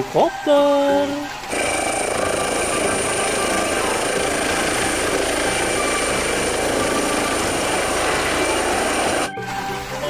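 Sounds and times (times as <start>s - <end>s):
helicopter rotor noise: 1.5s - 9.3s
helicopter turbine whine: 1.5s - 9.3s.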